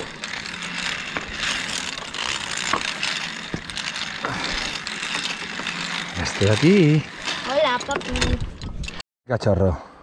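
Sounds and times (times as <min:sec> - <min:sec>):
pulley and clips clanking: 0:00.0 - 0:09.0
zip-line trolley on steel cable: 0:00.0 - 0:09.0.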